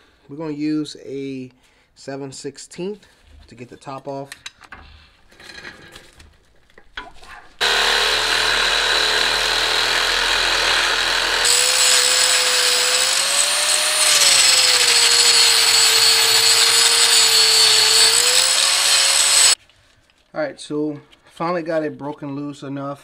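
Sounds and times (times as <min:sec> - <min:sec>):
angle grinder grinding steel: 0:07.6 - 0:19.6.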